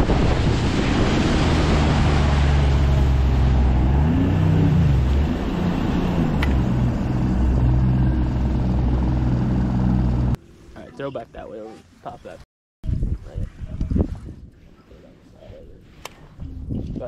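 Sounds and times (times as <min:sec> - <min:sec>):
wind on microphone: 0:00.0 - 0:07.9, 0:12.8 - 0:17.0
outboard motor running: 0:01.4 - 0:10.4.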